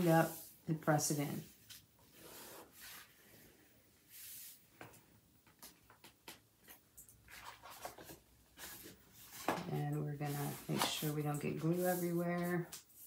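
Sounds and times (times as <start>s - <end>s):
hands rubbing cardstock: 10.2s - 13.0s.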